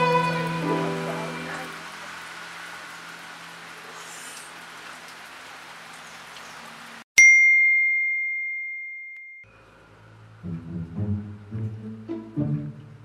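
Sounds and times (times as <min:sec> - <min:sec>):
faint background music: 0:00.0 - 0:01.8
soft music with plucked bass: 0:00.0 - 0:01.8, 0:10.4 - 0:13.0
steady rain: 0:00.0 - 0:07.0
bright chime ding: 0:07.2 - 0:09.5.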